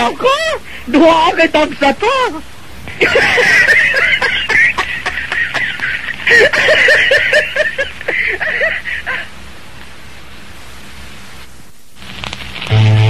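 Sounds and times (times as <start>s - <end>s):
steady hiss: 0.0s - 13.0s
person laughing: 2.9s - 9.4s.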